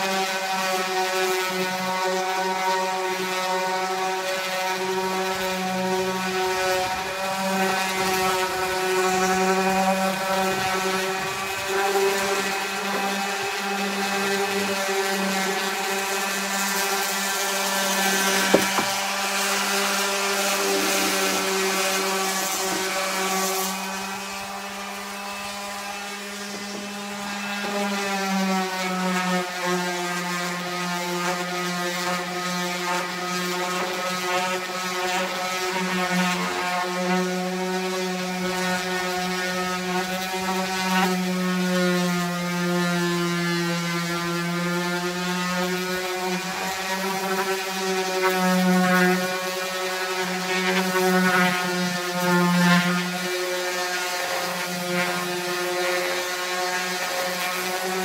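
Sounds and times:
sanding pad scratching wood: 0:01.5 - 0:58.0
orbital sander motor hum: 0:04.2 - 0:30.0.

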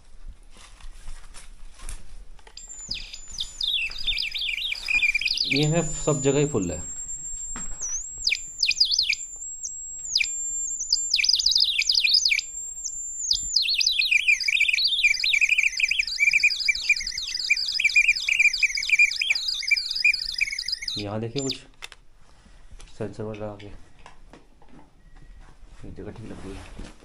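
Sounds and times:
meter alarm warbling whine: 0:02.6 - 0:21.6.

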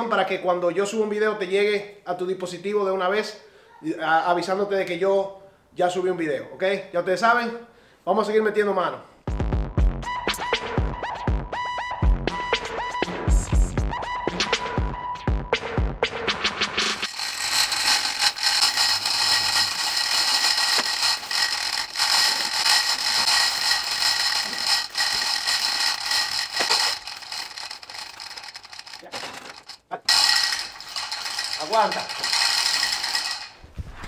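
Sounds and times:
ratchet clicking rapidly: 0:17.0 - 0:33.6.

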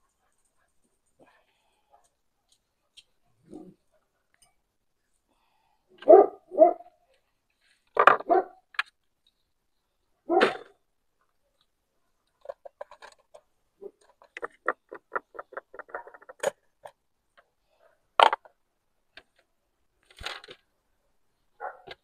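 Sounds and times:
dog barking: 0:06.0 - 0:07.0, 0:08.2 - 0:08.6, 0:10.2 - 0:10.8, 0:21.6 - 0:22.0.

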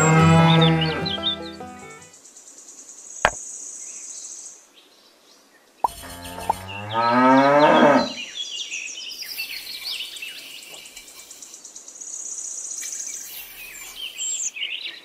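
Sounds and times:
cow mooing: 0:00.0 - 0:01.1, 0:05.9 - 0:08.2
songbirds chirping: 0:00.0 - 0:15.0.

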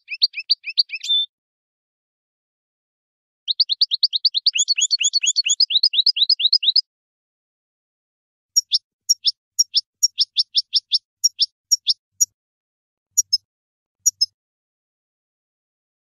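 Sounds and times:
goldfinch singing: 0:00.0 - 0:01.3, 0:03.5 - 0:06.8, 0:08.6 - 0:12.3, 0:14.0 - 0:14.3.

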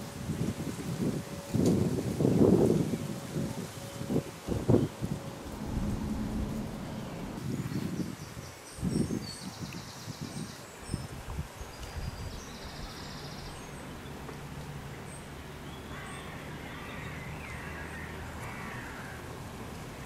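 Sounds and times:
wind rumble on microphone: 0:00.0 - 0:13.7.

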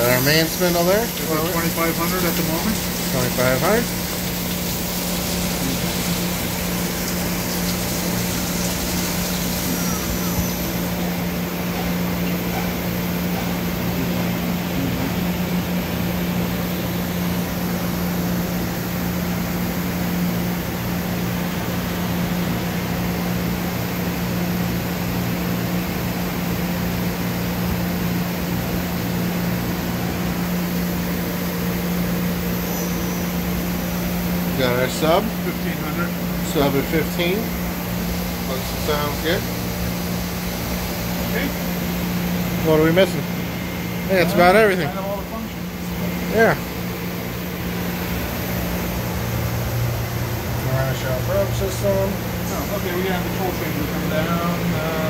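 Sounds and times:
lathe spindle humming: 0:00.0 - 0:11.6.

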